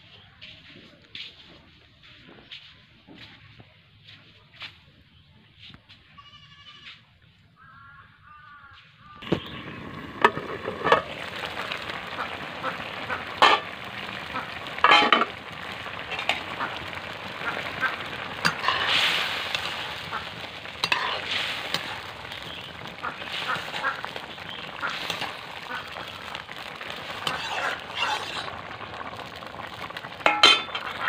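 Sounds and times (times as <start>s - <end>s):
curry boiling and sizzling: 9.1s - 31.0s.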